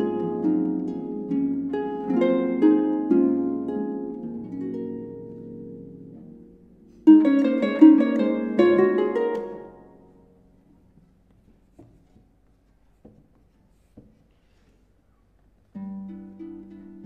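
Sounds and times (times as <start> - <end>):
harp chords: 0.0 - 10.8.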